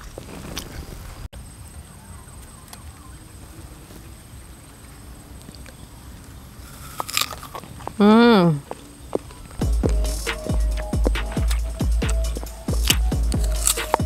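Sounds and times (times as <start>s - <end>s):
crunchy bite into mango: 6.6s - 8.0s, 12.8s - 14.0s.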